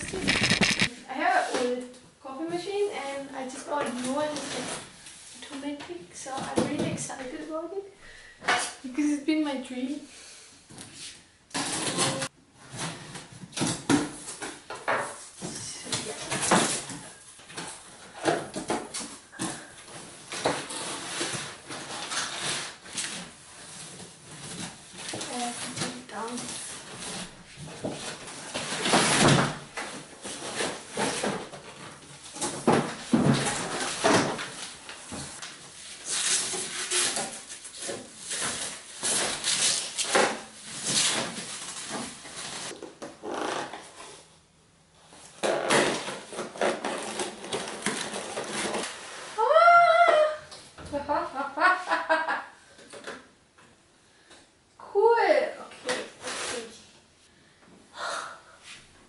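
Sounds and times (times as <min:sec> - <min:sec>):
cardboard flaps scraping: 0:00.0 - 0:00.9
packing material rustling: 0:00.0 - 0:00.9
packing tape ripping: 0:00.0 - 0:00.9, 0:36.0 - 0:44.2, 0:45.4 - 0:49.3
plastic wrapping rustling: 0:00.0 - 0:01.0, 0:11.6 - 0:44.2, 0:45.4 - 0:50.4.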